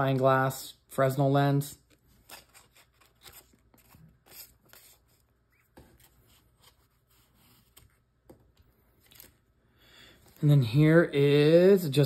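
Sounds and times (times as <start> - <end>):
paper rustling: 1.9 - 9.5.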